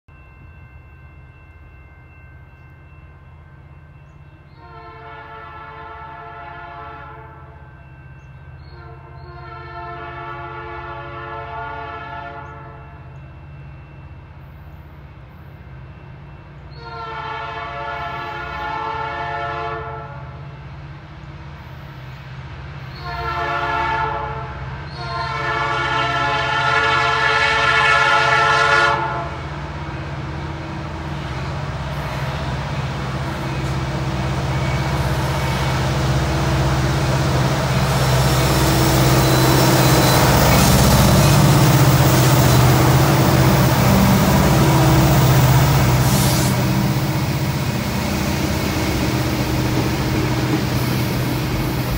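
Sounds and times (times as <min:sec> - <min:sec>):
train wheel and rail noise: 0:00.1 - 0:51.9
train air horn blasts: 0:04.5 - 0:07.6, 0:08.7 - 0:13.1, 0:16.7 - 0:20.4, 0:22.9 - 0:29.6, 0:31.9 - 0:51.9
locomotive diesel engines: 0:20.3 - 0:51.9.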